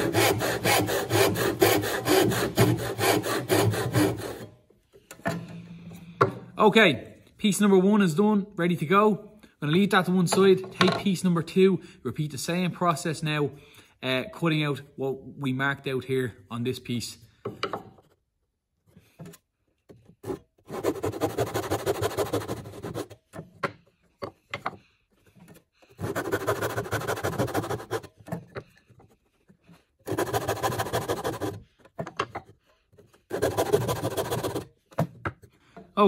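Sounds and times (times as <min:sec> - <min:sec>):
hand saw cutting wood: 0:00.0 - 0:04.6, 0:20.0 - 0:23.5, 0:25.4 - 0:34.8.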